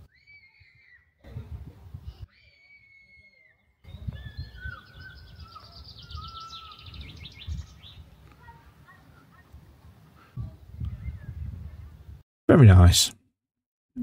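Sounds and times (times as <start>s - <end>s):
wind rumbling on microphone: 1.2s - 2.3s, 3.8s - 8.4s, 9.5s - 12.2s
birds chirping and trilling: 2.1s - 12.0s.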